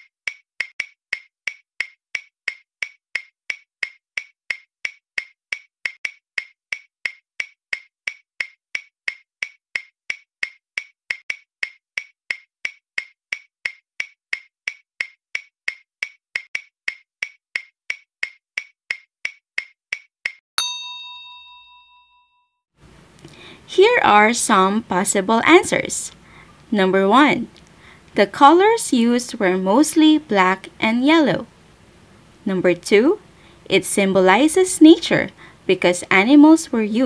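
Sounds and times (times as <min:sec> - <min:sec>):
clock ticking: 0:00.0 - 0:20.0
bell ding: 0:20.6 - 0:22.5.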